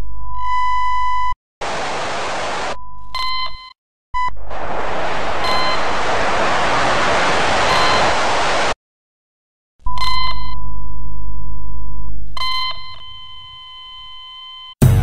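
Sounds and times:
static hiss: 1.6 - 2.8, 4.5 - 8.8.

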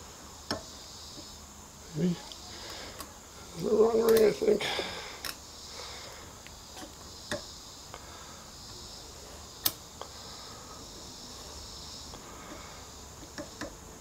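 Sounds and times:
faint steady high hiss: 0.0 - 14.0
metallic clicks and snaps: 9.6 - 10.1.

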